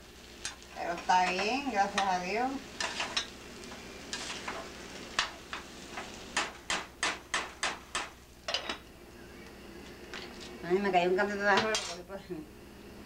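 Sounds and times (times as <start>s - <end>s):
spoon scraping a pot of rice: 4.1s - 4.7s.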